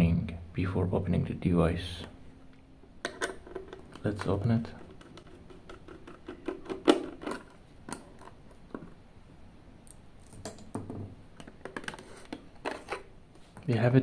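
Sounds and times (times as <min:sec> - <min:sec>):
plastic case clicks and scrapes: 0:11.4 - 0:13.1.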